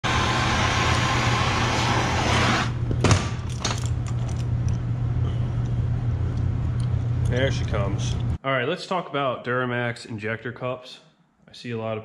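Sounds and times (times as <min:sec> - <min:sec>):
torch flame hissing: 0:00.0 - 0:02.8
steady low hum: 0:00.1 - 0:08.4.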